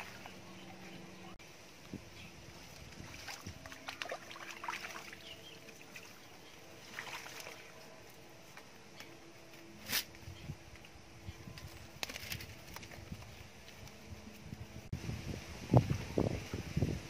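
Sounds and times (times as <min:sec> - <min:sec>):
rustling of wet plants: 0:00.0 - 0:17.0
handling fish at wicker basket: 0:11.6 - 0:14.4.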